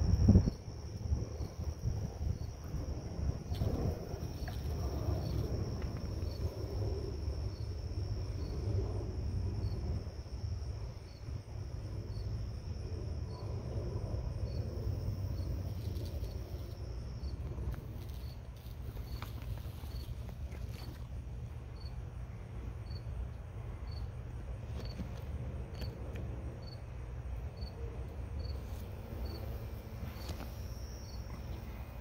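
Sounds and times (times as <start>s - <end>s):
insect high-pitched trill: 0.0s - 20.9s, 28.4s - 32.0s
low rumble: 0.0s - 32.0s.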